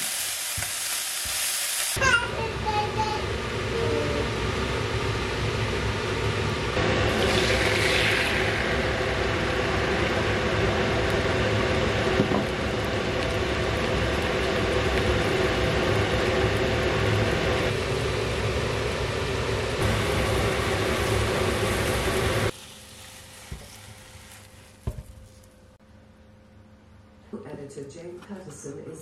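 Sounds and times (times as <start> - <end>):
egg sizzling in frying pan: 0.0 - 2.0, 4.8 - 25.6
steady hum: 2.0 - 23.3.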